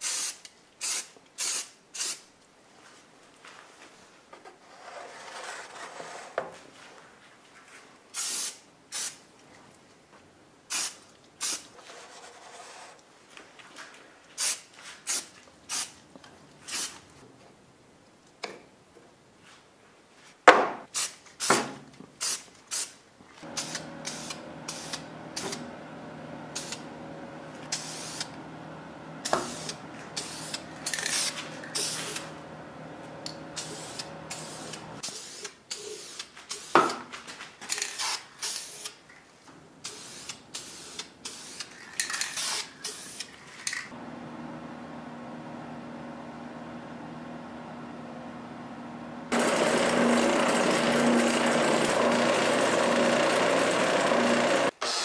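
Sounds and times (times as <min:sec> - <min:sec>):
spray paint can bursts: 0:00.0 - 0:02.2, 0:08.2 - 0:09.2, 0:10.7 - 0:11.6, 0:14.4 - 0:16.0, 0:16.7 - 0:17.0, 0:20.9 - 0:25.6, 0:27.7 - 0:28.3, 0:29.2 - 0:32.3, 0:33.6 - 0:36.9, 0:37.7 - 0:39.0, 0:39.8 - 0:43.3
steady hum: 0:23.4 - 0:35.0.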